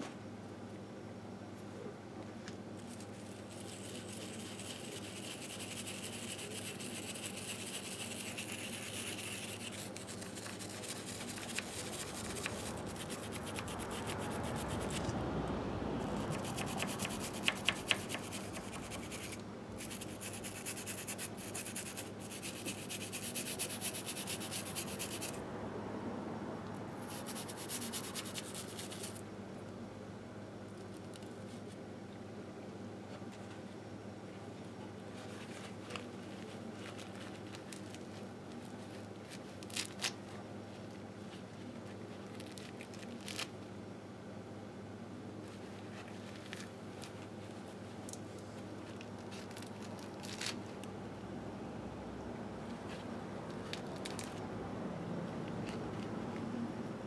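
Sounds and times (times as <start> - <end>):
brush scrubbing metal: 3.6 - 14.9.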